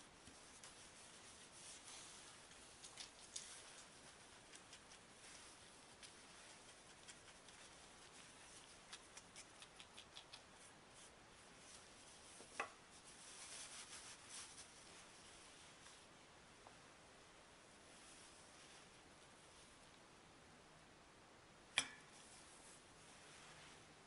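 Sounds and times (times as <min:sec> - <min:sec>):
pastry brush ticking and rubbing: 0:00.0 - 0:16.0.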